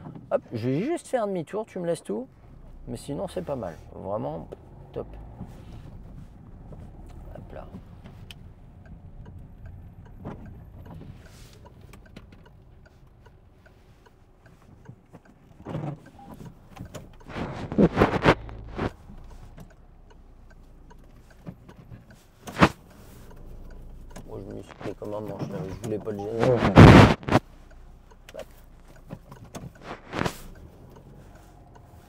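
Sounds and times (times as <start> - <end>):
car engine and cabin hum: 1.8 - 32.0
faint light ticking: 4.4 - 17.3, 18.9 - 26.4, 27.4 - 32.0.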